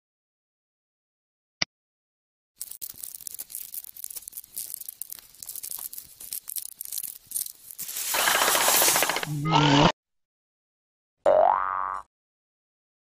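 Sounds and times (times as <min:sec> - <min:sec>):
crackling scratching sound effect: 0:02.6 - 0:09.9.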